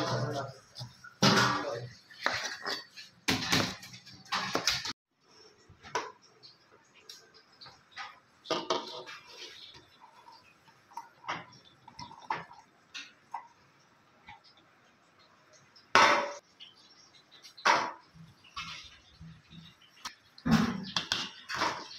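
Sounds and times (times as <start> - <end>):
kitchen utensils and dishes clinking: 0.0 - 13.6, 17.4 - 21.9.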